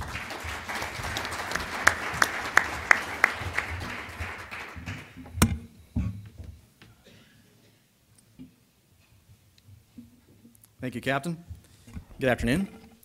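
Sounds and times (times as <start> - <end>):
audience applauding: 0.0 - 5.2
person clapping close by: 0.0 - 5.2.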